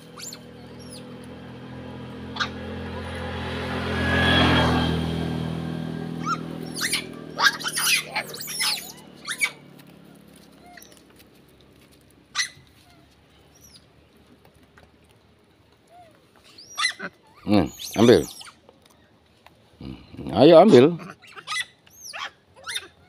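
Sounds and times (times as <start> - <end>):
monkeys squealing and screeching: 0.0 - 1.2, 2.3 - 3.1, 6.2 - 9.7, 16.4 - 18.6, 20.6 - 23.0
motorbike passing: 0.0 - 14.9, 16.3 - 18.6, 19.8 - 22.9
monkey chirps: 0.1 - 1.1, 6.2 - 9.6, 13.5 - 13.8, 16.4 - 18.6, 21.0 - 23.0.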